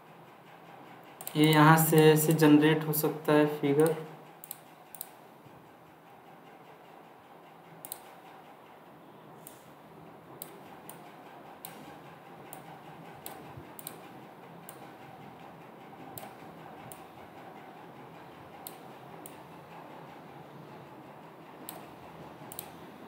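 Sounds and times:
computer mouse clicks: 0:03.8 - 0:05.2, 0:07.8 - 0:08.2, 0:10.4 - 0:14.9, 0:16.2 - 0:17.1, 0:21.6 - 0:22.9.

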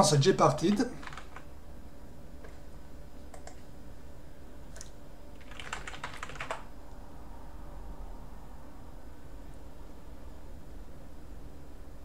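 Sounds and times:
keyboard typing: 0:00.7 - 0:01.5, 0:03.3 - 0:03.6, 0:04.7 - 0:06.7.

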